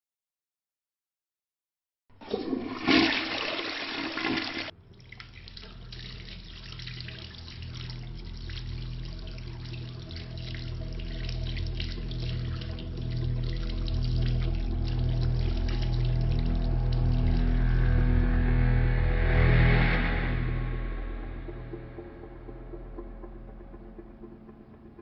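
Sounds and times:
toilet flushing: 2.2s - 17.5s
water trickling: 2.2s - 18.1s
low slow pulsing: 5.7s - 25.0s.

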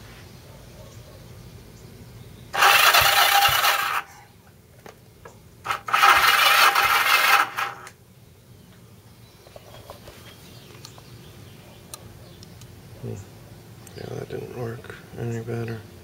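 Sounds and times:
electric starter cranking engine: 2.5s - 4.1s, 5.6s - 8.0s.

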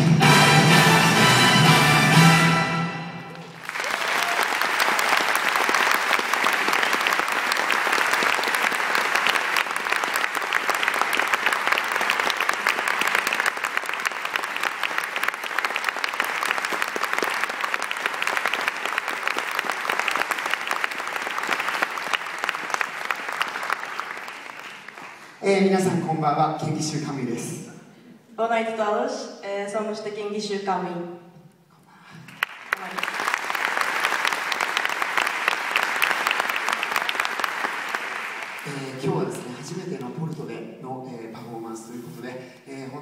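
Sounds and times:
music: 0.0s - 3.5s
audience applauding: 3.3s - 25.4s, 32.1s - 40.1s.

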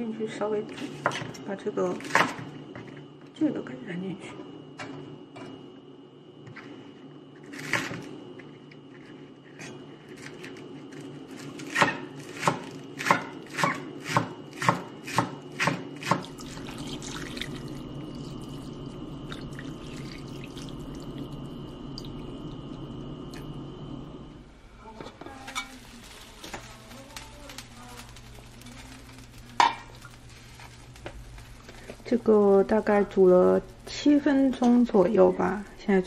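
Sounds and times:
knife chopping on wooden board: 11.6s - 16.3s
water pouring into metal pot: 16.2s - 23.4s.

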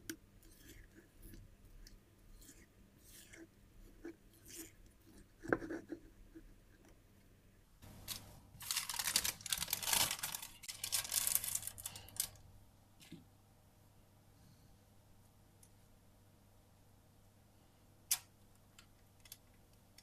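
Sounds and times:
parchment paper crinkling: 8.0s - 12.4s.

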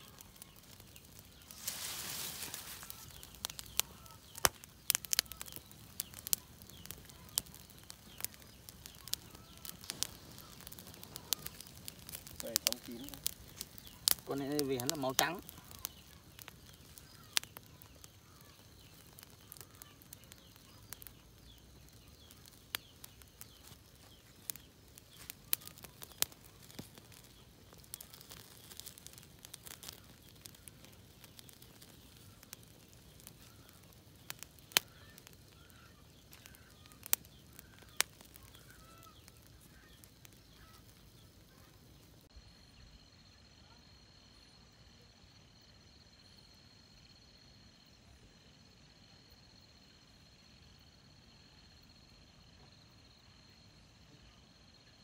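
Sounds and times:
hiss of flame: 0.0s - 42.3s
fire crackling and popping: 0.0s - 42.5s.

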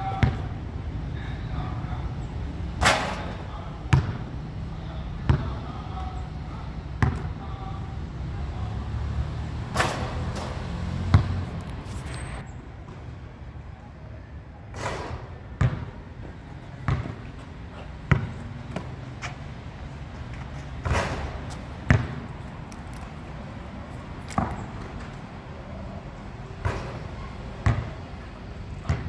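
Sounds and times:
basketball bouncing on court: 0.0s - 0.5s, 3.9s - 4.2s, 5.3s - 5.6s, 7.0s - 7.3s, 9.8s - 11.4s, 15.6s - 16.0s, 16.8s - 17.3s, 18.1s - 18.9s, 20.8s - 22.3s, 27.6s - 28.0s.

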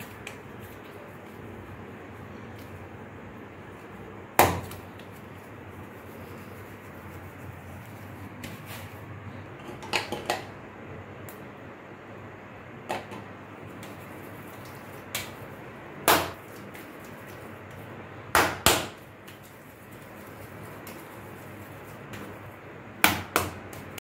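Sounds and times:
hands slapping dough on stone: 4.2s - 5.2s, 12.9s - 21.2s, 21.9s - 24.0s.

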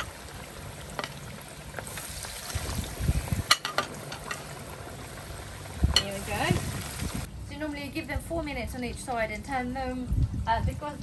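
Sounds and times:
spitting oil crackles: 0.0s - 7.3s
oil bubbling and sizzling: 0.0s - 11.0s
wind buffeting microphone: 2.4s - 3.5s, 5.6s - 7.3s, 9.7s - 11.0s.

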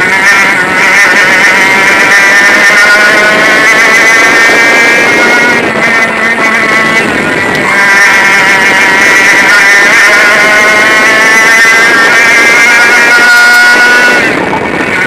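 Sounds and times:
kart engine at high revs: 0.0s - 15.0s.

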